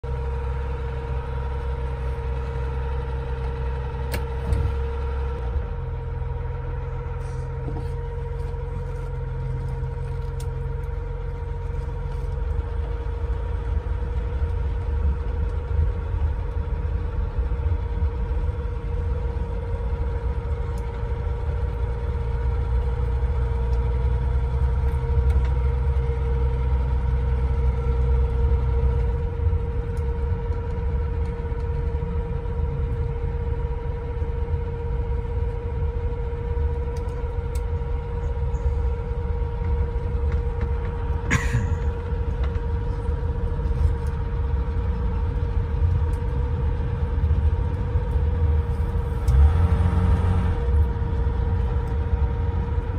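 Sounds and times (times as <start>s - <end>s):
car engine idling and pulling away: 0.0s - 52.9s
steady whine: 0.0s - 52.9s.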